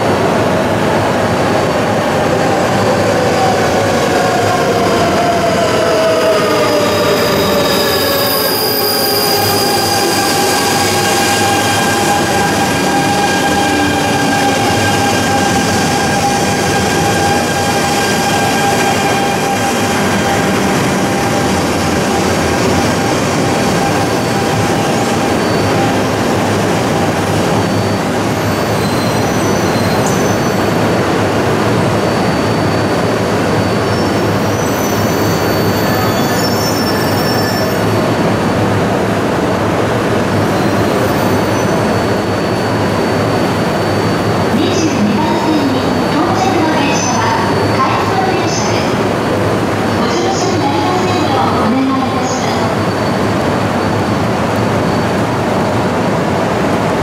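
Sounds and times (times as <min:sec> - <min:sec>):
train running rumble and hum: 0:00.0 - 0:57.0
short high brake squeals: 0:27.6 - 0:30.8, 0:33.6 - 0:38.1.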